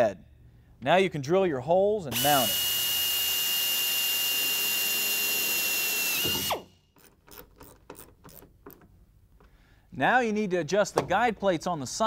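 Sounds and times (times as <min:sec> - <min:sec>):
electric drill whining through metal: 0:02.1 - 0:07.7.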